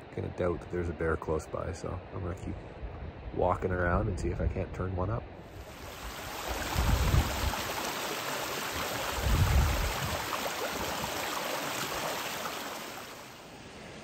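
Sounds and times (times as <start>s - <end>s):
creek water running over stones: 5.6s - 13.4s.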